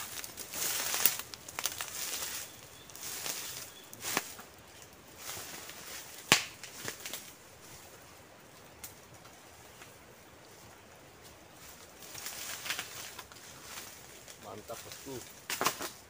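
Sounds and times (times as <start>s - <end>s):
twigs snapping: 0.0s - 7.3s, 12.0s - 16.0s
footsteps crunching dry leaves: 0.0s - 7.9s, 11.2s - 16.0s.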